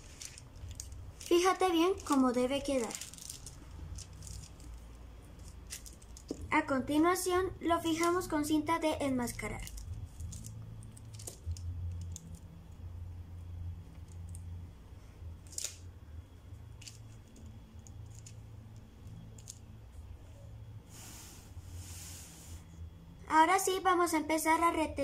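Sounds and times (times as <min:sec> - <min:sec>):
faint low hum: 0:00.0 - 0:25.0
masking tape tearing: 0:15.5 - 0:15.8.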